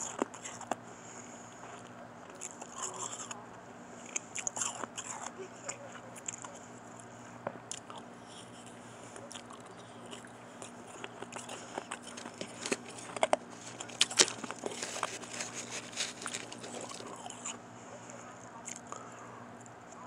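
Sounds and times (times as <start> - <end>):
crunchy ice being chewed: 0.0 - 3.4, 4.0 - 19.8.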